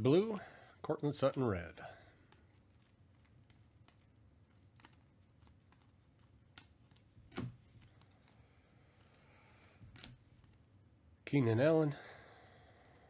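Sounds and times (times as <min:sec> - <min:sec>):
trading cards flipped by hand: 0:02.2 - 0:10.6.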